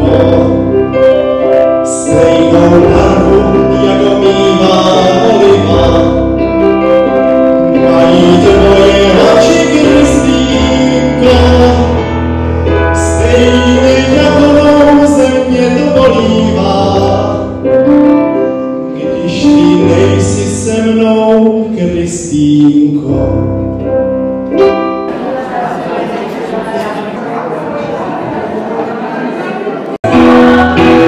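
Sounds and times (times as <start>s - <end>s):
man singing into a microphone: 0.0s - 23.6s, 30.0s - 31.0s
electric keyboard chords: 0.0s - 31.0s.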